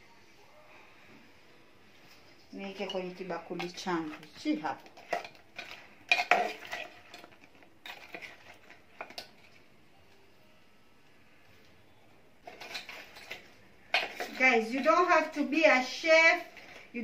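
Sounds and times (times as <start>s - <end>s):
metal spoon clinking on a bowl: 2.7s - 9.5s.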